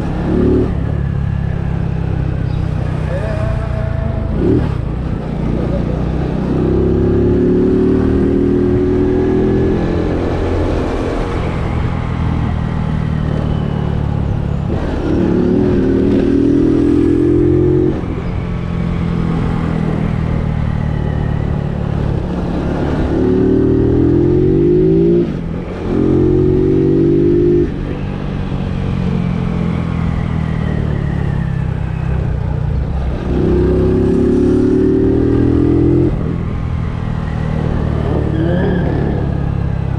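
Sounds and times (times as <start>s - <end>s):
vehicle engine revving: 2.6s - 12.6s, 32.8s - 39.9s.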